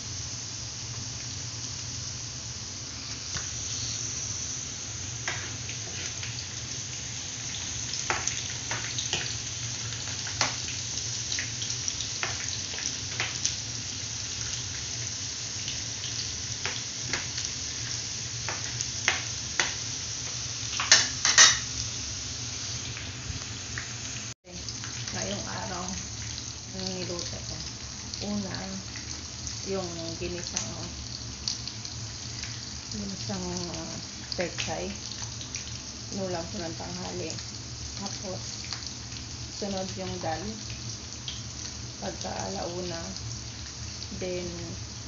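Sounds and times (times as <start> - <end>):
fries sizzling in hot oil: 0.0 - 45.0
oil popping and crackling: 5.1 - 21.7.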